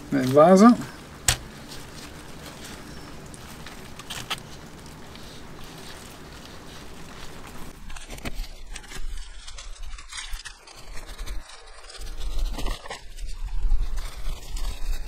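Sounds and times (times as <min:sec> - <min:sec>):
soil scraping and crunching: 0:00.0 - 0:15.0.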